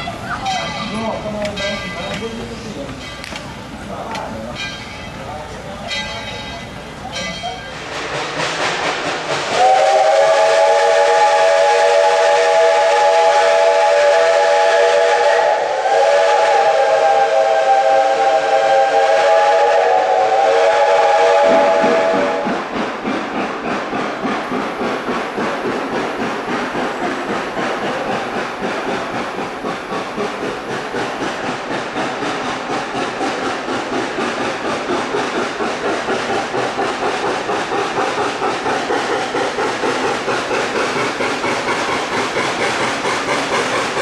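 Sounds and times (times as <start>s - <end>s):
locomotive rhythmic exhaust and hiss: 0.0s - 44.0s
steam whistle blasts: 9.5s - 22.6s.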